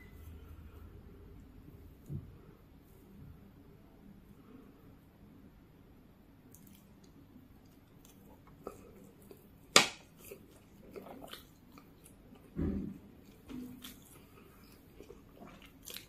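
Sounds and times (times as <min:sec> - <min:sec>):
person chewing noodles: 0:06.5 - 0:16.0.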